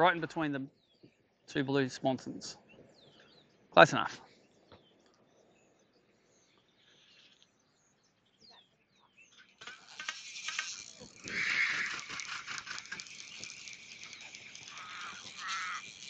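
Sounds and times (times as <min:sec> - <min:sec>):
faint bird chirps: 0:00.6 - 0:09.6
fishing reel clicking rattle: 0:09.4 - 0:16.0.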